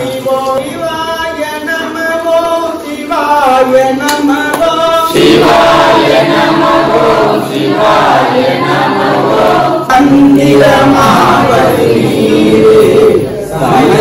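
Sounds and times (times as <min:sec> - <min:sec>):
group of men chanting: 0:04.6 - 0:14.0.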